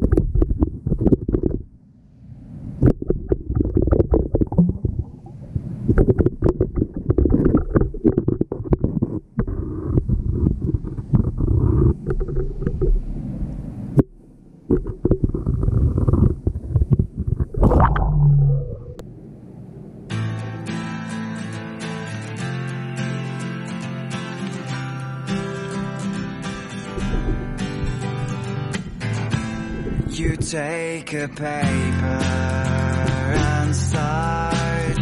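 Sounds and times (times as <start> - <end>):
underwater clicks and knocks: 0.0 - 1.8, 2.8 - 13.1, 14.0 - 19.0, 27.0 - 28.1
underwater rumble of moving water: 0.0 - 19.2, 26.9 - 30.6.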